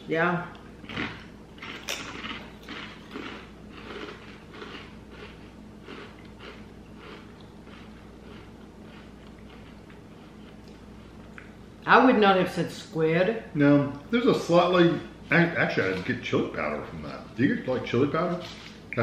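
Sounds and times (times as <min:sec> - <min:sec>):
potato chips crunching: 0:00.8 - 0:10.8.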